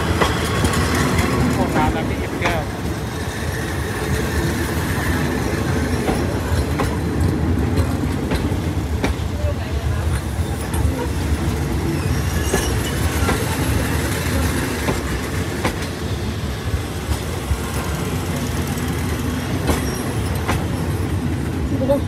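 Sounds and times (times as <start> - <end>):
clacks over rail joints: 0.0 - 3.0, 5.7 - 9.4, 12.3 - 16.1, 17.2 - 21.1
train wheels rumbling on rail: 0.0 - 22.0.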